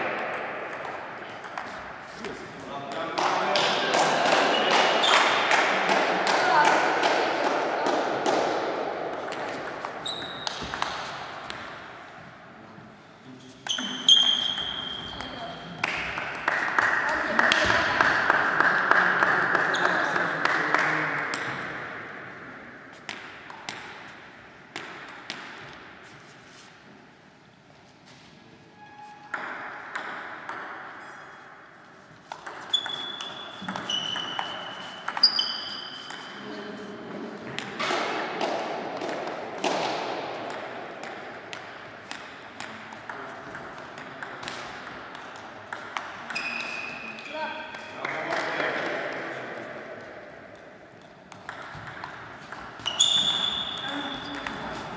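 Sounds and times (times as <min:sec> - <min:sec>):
table tennis ball bouncing: 0:00.0 - 0:12.2, 0:13.6 - 0:22.2, 0:22.9 - 0:25.9, 0:29.3 - 0:36.6, 0:37.4 - 0:47.8, 0:49.6 - 0:54.9
high squeak: 0:13.7 - 0:15.5, 0:28.8 - 0:29.4, 0:32.7 - 0:36.4, 0:46.3 - 0:47.1, 0:52.8 - 0:54.5.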